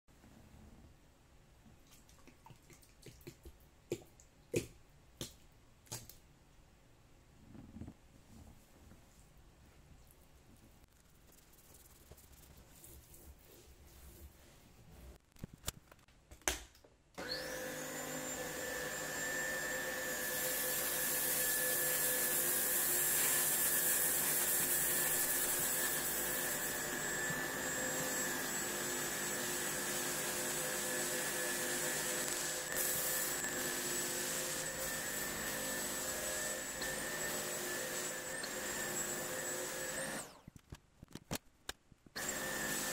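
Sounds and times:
carpet cleaner motor whining: 17.2s - 40.4s, 42.2s - 42.9s.

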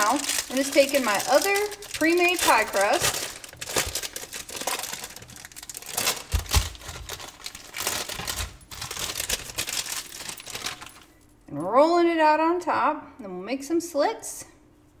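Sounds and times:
plastic wrapper crinkling: 0.0s - 11.2s.

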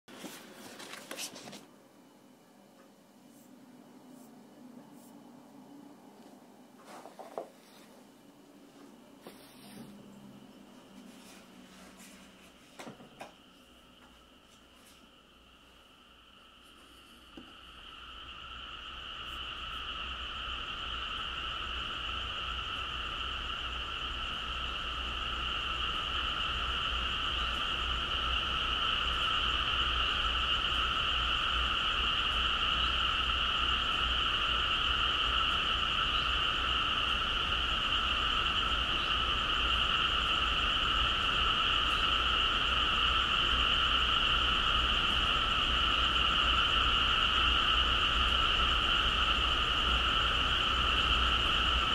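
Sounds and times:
low hum: 0.1s - 51.9s
frogs trilling: 17.6s - 51.9s.

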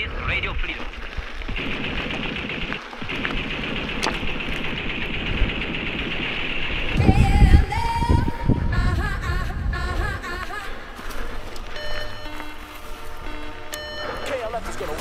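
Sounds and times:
bike tyres rattling on rough trail: 0.0s - 6.2s
scattered clicks: 0.6s - 7.1s
steady high buzz: 1.6s - 15.0s.

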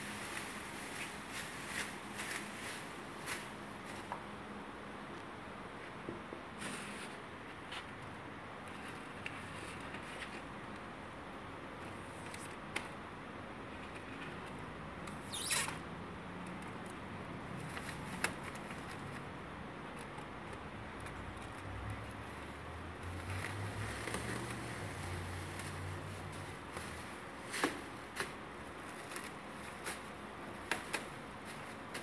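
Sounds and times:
plastic film rustling and crinkling: 0.0s - 4.2s, 17.4s - 20.2s, 21.2s - 32.0s.

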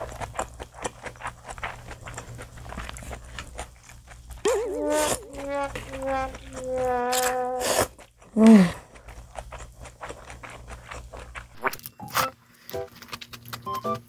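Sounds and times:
person slurping and chewing noodles: 0.0s - 13.8s.

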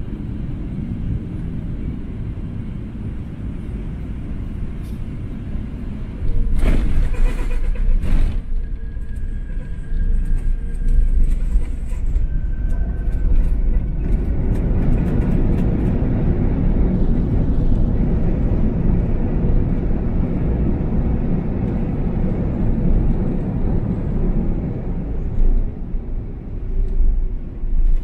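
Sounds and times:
airliner cabin rumble: 0.0s - 28.0s.

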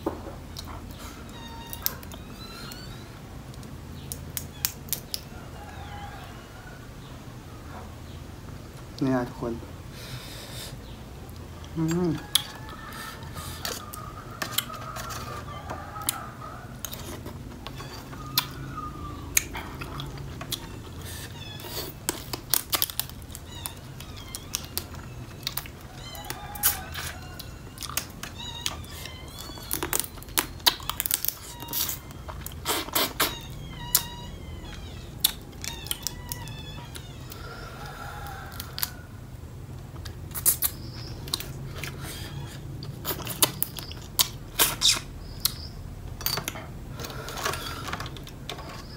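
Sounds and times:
sucking and chewing crab: 10.0s - 39.2s, 39.8s - 45.7s.

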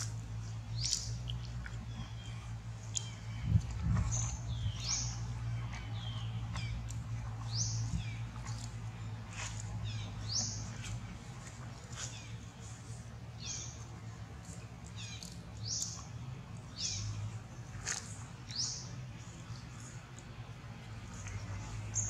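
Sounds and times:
steady low hum: 0.0s - 22.0s
bird chirping: 0.7s - 11.1s, 11.9s - 17.4s, 18.5s - 19.9s.

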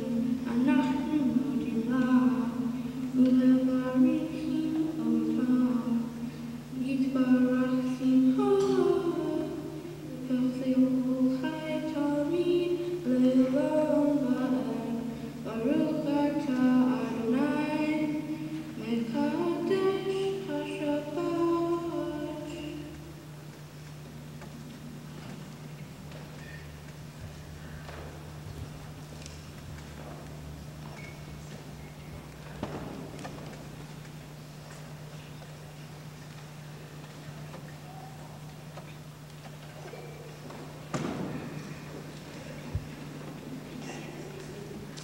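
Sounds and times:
girl chanting: 0.0s - 23.0s.

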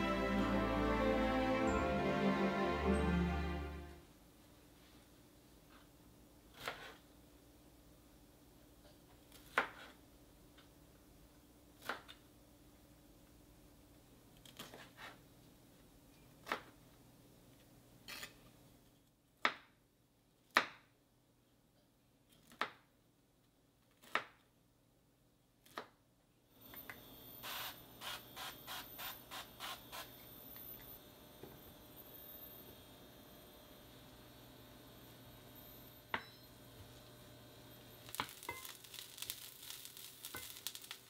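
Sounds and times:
knife cutting broccoli on board: 6.5s - 7.0s, 9.3s - 10.0s, 14.4s - 15.2s.

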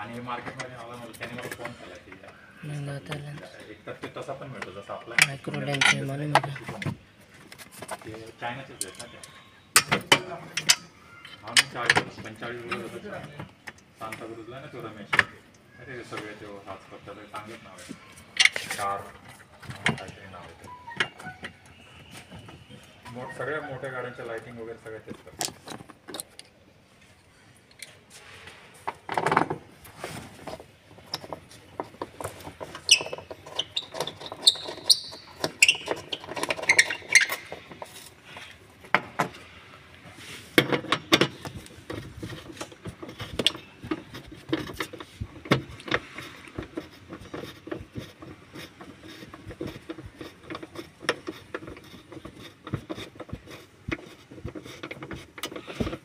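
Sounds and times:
short high squeaks: 20.6s - 24.3s, 32.8s - 37.7s.

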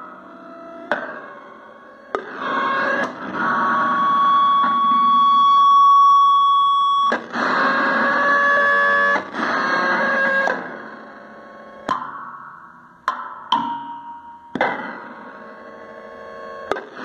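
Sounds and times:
fuzzy electronic tones: 0.0s - 11.8s.

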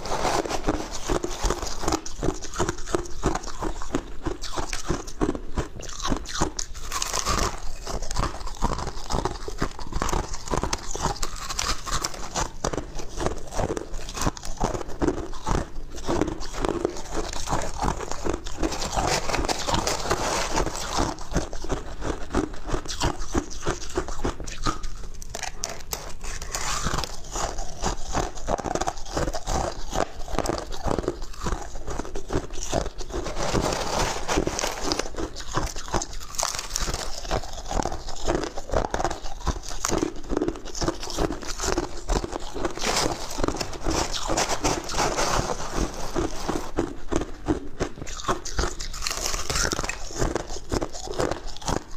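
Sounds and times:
crushed ice being chewed: 0.0s - 51.9s
metal spoon scooping ice: 32.8s - 39.2s, 41.2s - 46.7s.

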